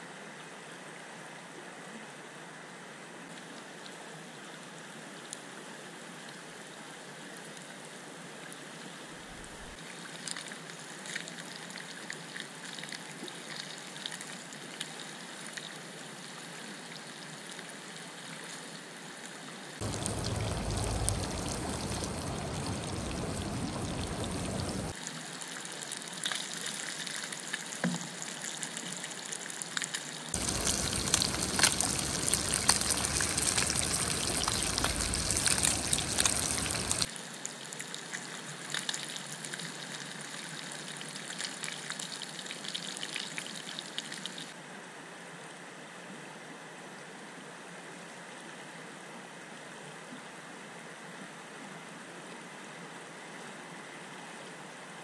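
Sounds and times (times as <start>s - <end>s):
running creek water: 2.7s - 44.6s
fish sizzling in hot oil: 30.4s - 37.1s.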